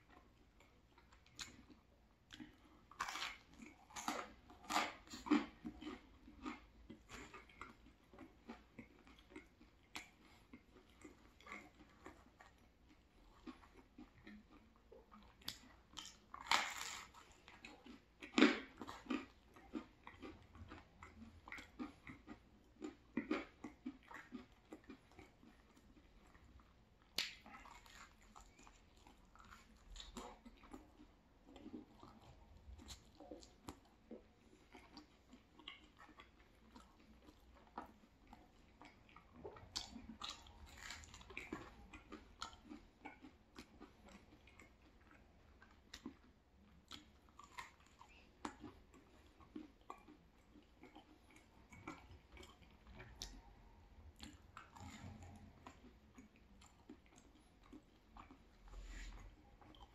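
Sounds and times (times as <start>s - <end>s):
chewing crispy pizza crust: 0.0s - 59.9s.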